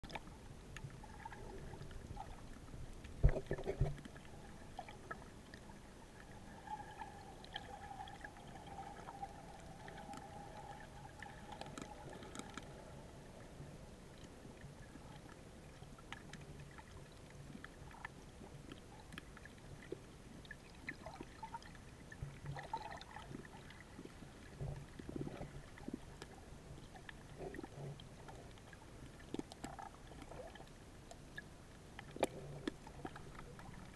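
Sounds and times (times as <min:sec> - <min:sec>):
faint steady hum: 0:00.0 - 0:33.9
muffled underwater water wash: 0:00.0 - 0:33.9
small clicks: 0:11.4 - 0:12.8.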